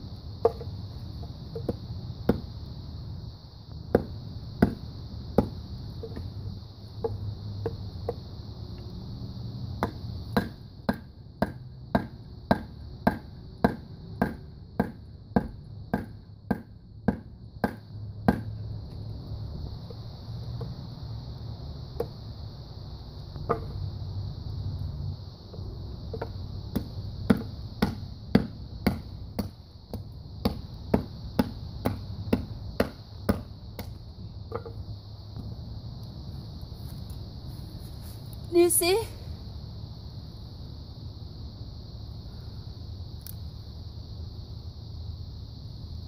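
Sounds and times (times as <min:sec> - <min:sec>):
baton knocking blade through wood: 0:26.7 - 0:29.5.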